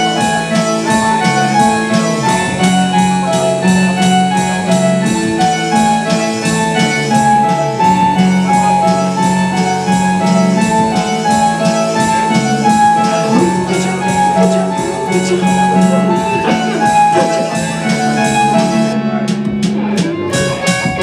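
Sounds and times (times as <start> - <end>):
drum machine beat: 0.0 - 21.0
electric bass: 0.0 - 21.0
synthesizer melody: 10.2 - 19.2.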